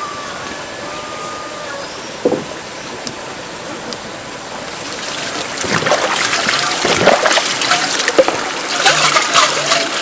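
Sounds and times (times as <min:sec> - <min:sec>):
flowing water rushing: 0:00.0 - 0:10.0
knock: 0:02.2 - 0:02.5
water splashing: 0:04.5 - 0:10.0.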